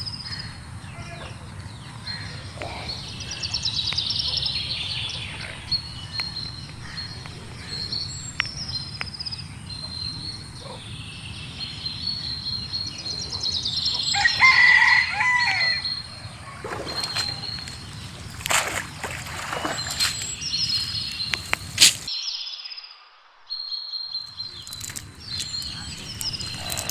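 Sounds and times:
small birds chirping: 0.0s - 26.9s
rooster crowing: 14.0s - 16.0s.

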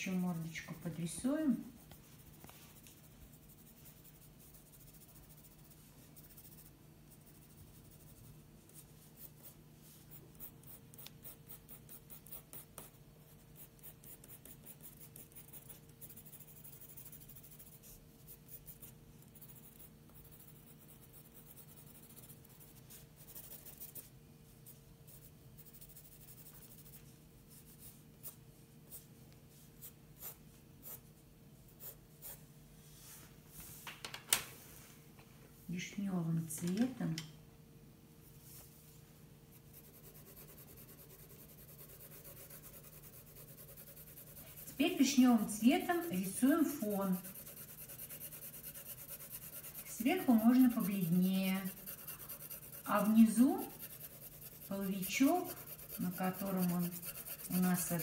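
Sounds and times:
pencil scratching on paper: 2.2s - 24.1s, 25.1s - 29.1s, 39.5s - 58.0s.

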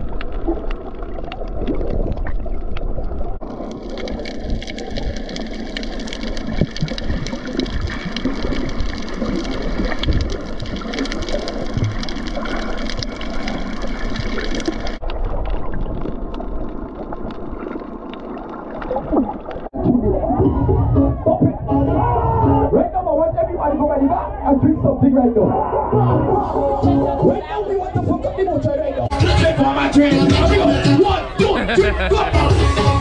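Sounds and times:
underwater crackling and gurgling: 0.0s - 20.0s.

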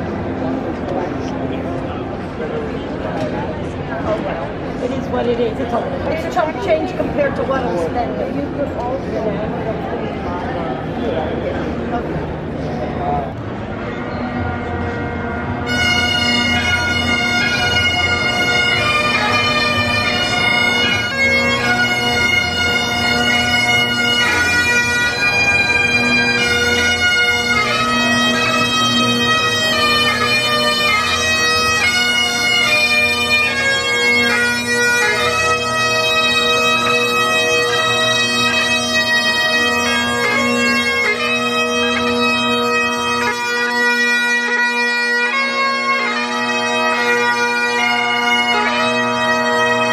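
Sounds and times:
bagpipes playing a tune: 14.2s - 49.9s.

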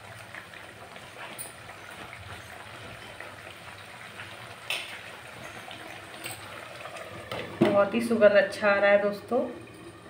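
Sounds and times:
gravy boiling and bubbling: 0.0s - 10.0s.

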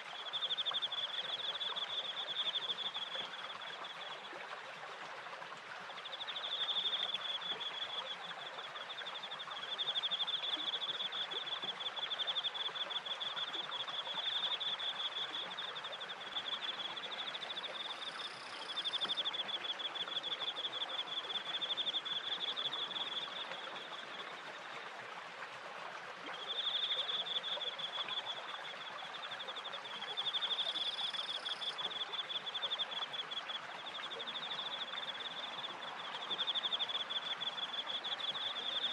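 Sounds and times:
crickets trilling: 9.0s - 24.0s, 29.2s - 38.9s.

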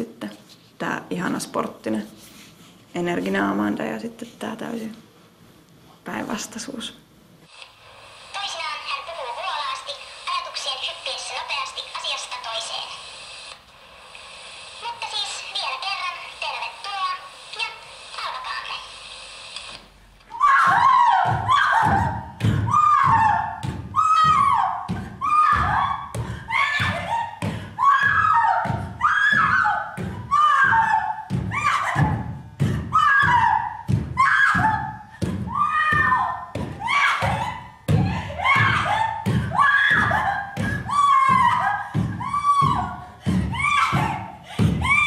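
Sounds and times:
thumping beat: 20.5s - 45.0s.

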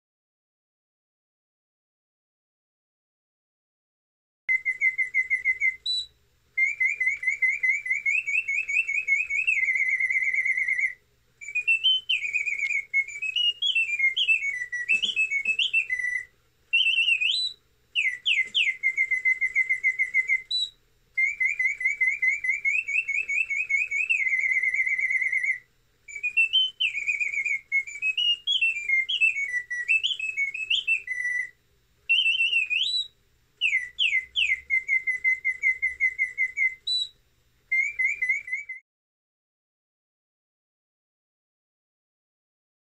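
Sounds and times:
mechanical bird whistle trilling: 4.5s - 37.1s, 37.7s - 38.8s.

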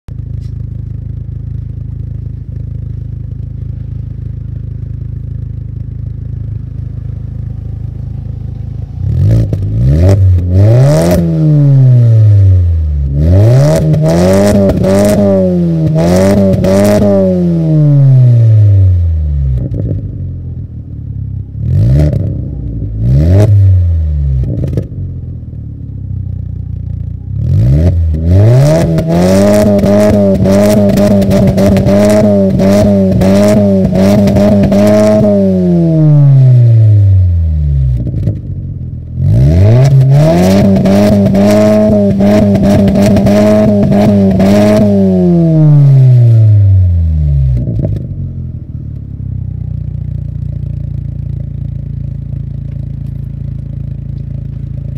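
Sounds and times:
engine idling: 0.1s - 13.2s, 24.4s - 27.4s, 46.8s - 54.9s
car engine revving: 0.4s - 54.9s.

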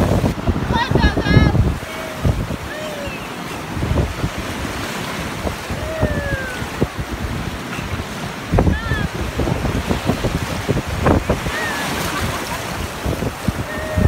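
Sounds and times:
surf washing in: 0.0s - 14.0s
wind gusting on microphone: 0.0s - 14.0s
distant high calls: 1.8s - 3.7s.

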